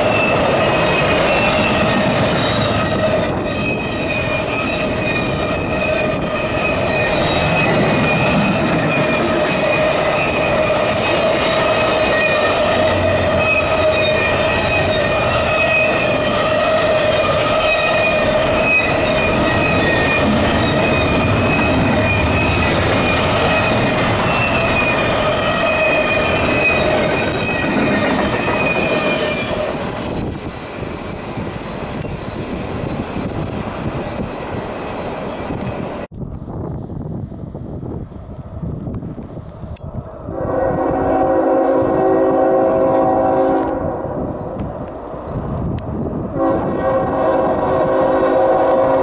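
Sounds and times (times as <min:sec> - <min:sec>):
high-pitched wheel squeal: 0:00.0 - 0:30.3
train wheels rushing on rail: 0:00.0 - 0:49.0.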